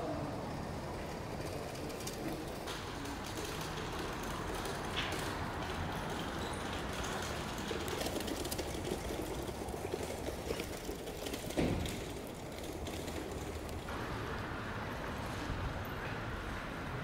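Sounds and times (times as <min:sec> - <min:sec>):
street background noise: 0:00.0 - 0:17.0.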